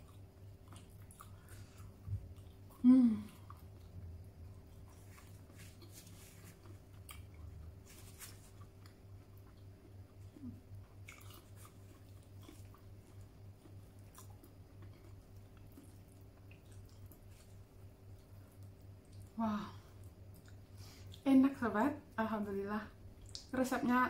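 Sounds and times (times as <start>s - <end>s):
faint chewing: 0.0s - 21.3s, 23.2s - 23.9s
low steady hum: 0.0s - 24.0s
wet mouth smacks and clicks: 23.2s - 23.5s.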